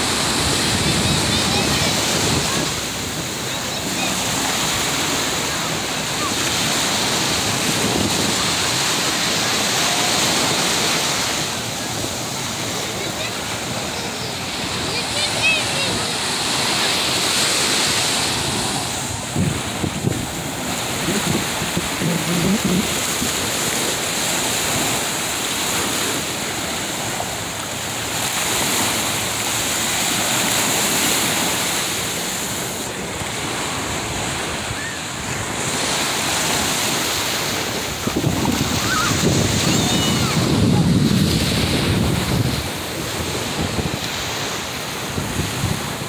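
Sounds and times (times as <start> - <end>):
small waves washing onto sand: 0.0 - 46.0
wind buffeting microphone: 18.1 - 23.9, 37.5 - 46.0.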